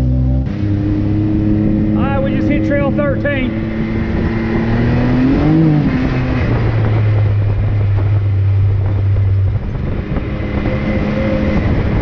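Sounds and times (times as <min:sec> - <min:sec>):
off-road vehicle engine running: 0:00.0 - 0:12.0.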